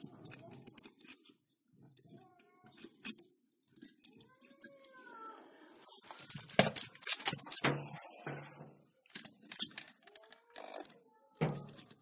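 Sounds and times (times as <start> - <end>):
scraping and rustling: 5.8 - 10.0.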